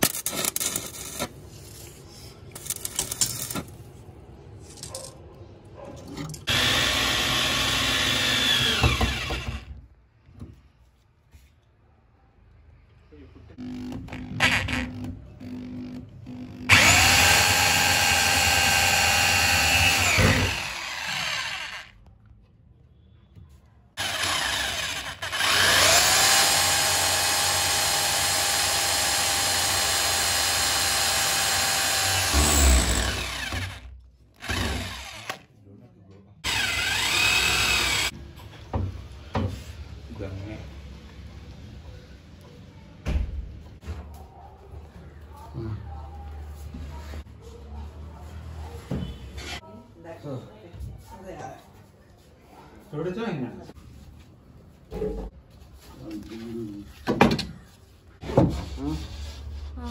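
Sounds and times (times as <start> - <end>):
electric drill running: 6.5 - 9.7, 13.6 - 21.9, 24.0 - 33.8, 34.4 - 35.4, 36.4 - 38.1.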